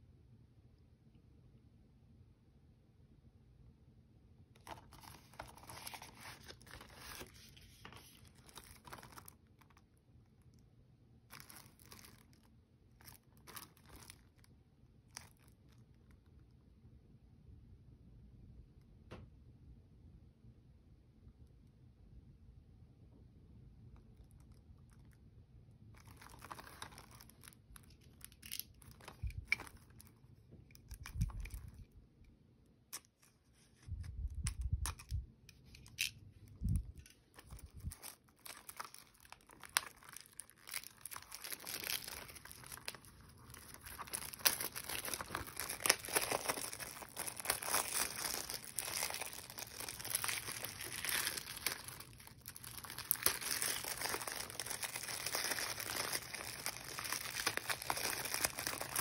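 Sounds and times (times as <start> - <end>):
plastic wrap crinkling: 4.6 - 9.9, 11.3 - 16.0, 26.0 - 31.9, 33.0 - 59.0.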